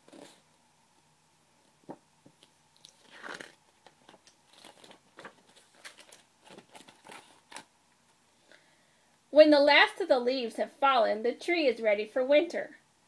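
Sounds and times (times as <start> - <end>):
book pages rustling: 0.0 - 0.4, 1.9 - 7.7.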